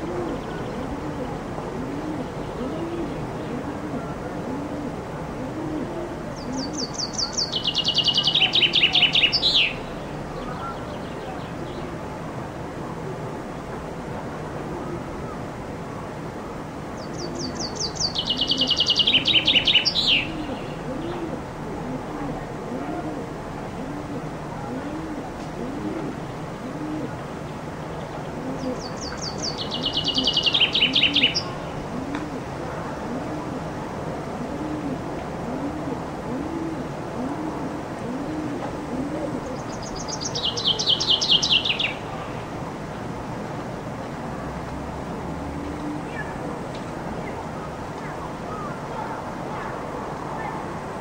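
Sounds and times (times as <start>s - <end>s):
chaffinch singing: 6.4s - 11.9s, 17.0s - 21.4s, 27.4s - 31.9s, 39.4s - 42.4s.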